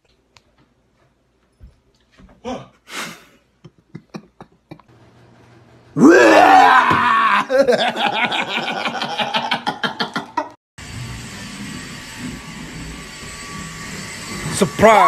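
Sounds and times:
person screaming: 6.0 - 8.2.

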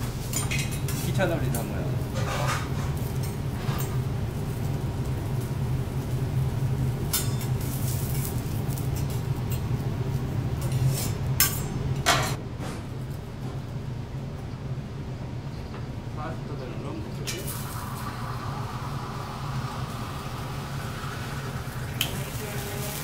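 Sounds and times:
metal utensils clinking on griddle: 2.2 - 4.0, 7.1 - 9.6.

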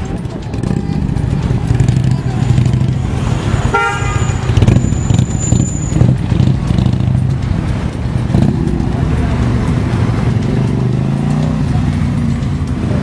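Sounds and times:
motorcycle engines rumbling: 0.0 - 13.0
vehicle horn toot: 3.7 - 6.0.

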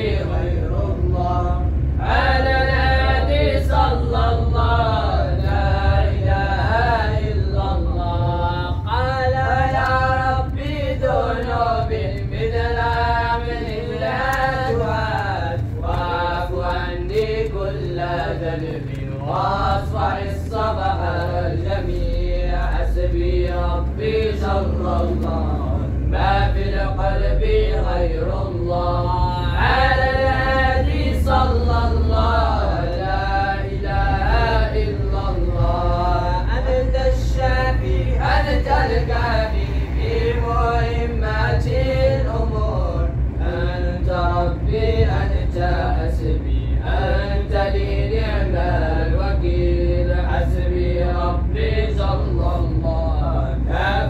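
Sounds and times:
low steady hum: 0.0 - 54.0
voices chanting a slow melody: 0.0 - 54.0.

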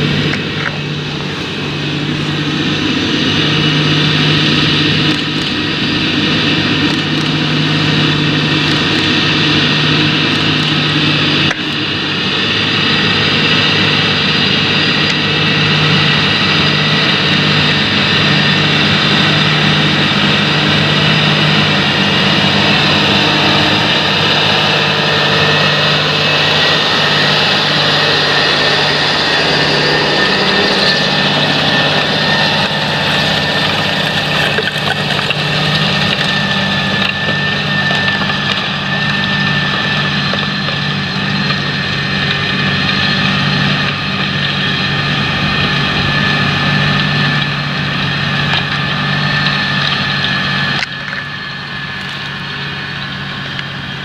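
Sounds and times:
diesel tractor engine under load: 0.0 - 54.0
steady high whine: 0.0 - 54.0
tracks and soil moving: 0.0 - 54.0.

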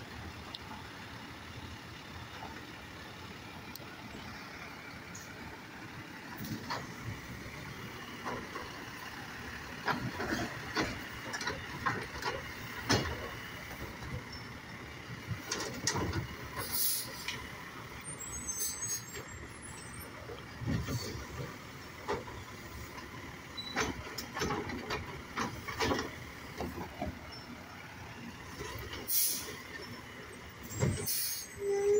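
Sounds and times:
garbage truck engine: 0.0 - 31.9
clanks of lifting arm and carts: 9.6 - 14.6, 15.3 - 17.5, 20.4 - 27.5
air brakes hissing: 16.6 - 17.4, 18.3 - 19.2, 29.1 - 29.6, 30.6 - 31.9.

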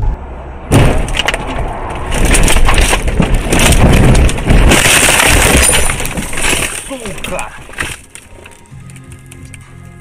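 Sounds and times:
branches crashing against car: 0.7 - 8.6
car jolting over rough ground: 0.7 - 9.1.

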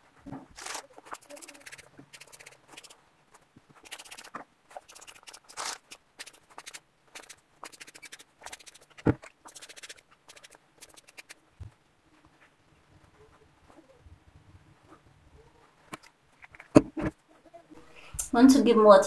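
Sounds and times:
fingers rubbing through hair: 0.5 - 11.5.

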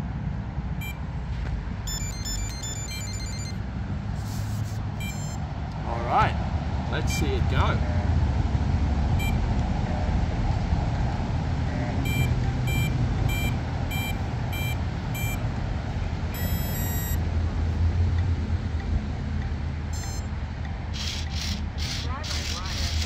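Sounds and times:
electronic beeps: 0.8 - 1.0, 1.9 - 3.6, 5.0 - 5.5, 9.2 - 9.4, 11.7 - 15.5, 16.3 - 17.2, 20.0 - 20.3
buzzy multi-tone beep: 1.9 - 3.6, 5.0 - 5.4, 11.8 - 15.4, 16.4 - 17.2, 20.0 - 20.3.

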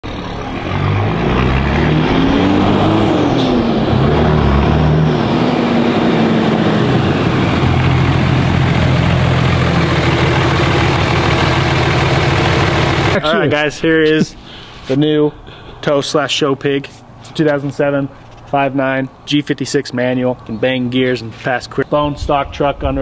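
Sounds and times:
diesel truck engine: 0.0 - 15.9.

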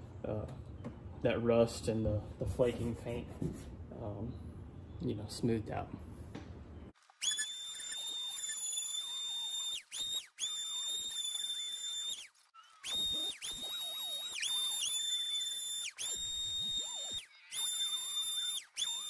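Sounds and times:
electric sander whining: 7.2 - 19.0.

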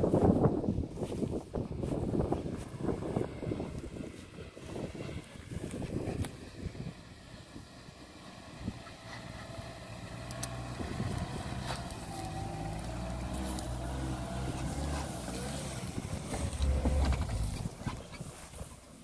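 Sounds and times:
car engine climbing: 0.0 - 19.0
stones clicking under tyres: 10.1 - 18.9.

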